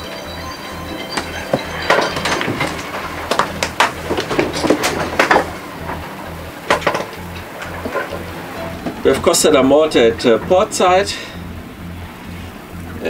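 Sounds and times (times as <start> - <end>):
steady low hum: 0.0 - 13.0
knocks and clatters in boat cabin: 1.1 - 9.1.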